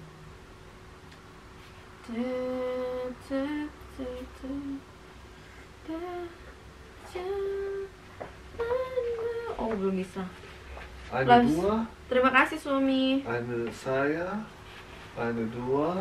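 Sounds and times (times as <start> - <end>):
woman humming: 2.0 - 4.8, 5.8 - 8.0, 8.6 - 9.8.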